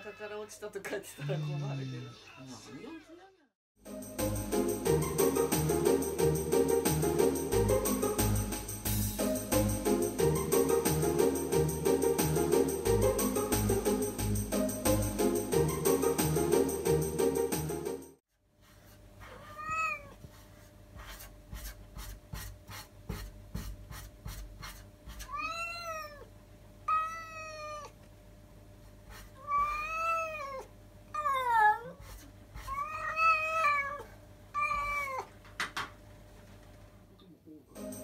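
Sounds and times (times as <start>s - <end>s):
cat meowing: 19.3s - 20.2s, 25.2s - 28.0s, 29.4s - 32.0s, 32.6s - 35.3s.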